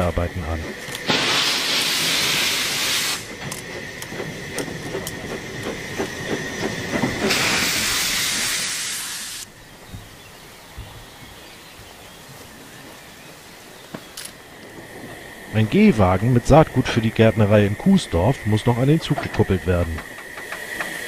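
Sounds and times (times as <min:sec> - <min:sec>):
steam locomotive hissing steam: 0:00.0 - 0:09.5, 0:14.8 - 0:21.0
knocks and clanks: 0:03.3 - 0:07.7, 0:19.0 - 0:21.0.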